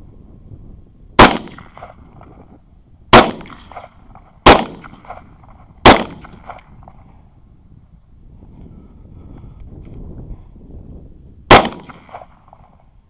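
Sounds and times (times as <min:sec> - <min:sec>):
rifle shots with echo: 0:01.2 - 0:02.2, 0:03.1 - 0:06.8, 0:11.5 - 0:12.8.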